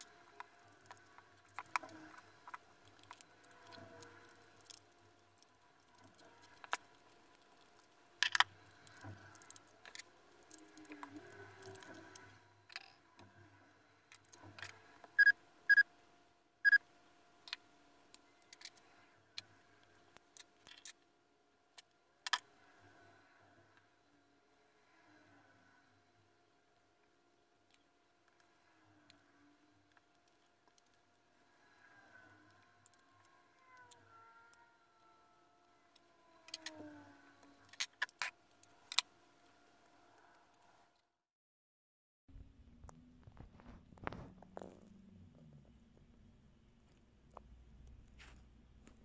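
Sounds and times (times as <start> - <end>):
small parts clicking and rattling: 0.0 - 13.3, 17.4 - 21.1, 21.7 - 23.1, 23.7 - 40.8.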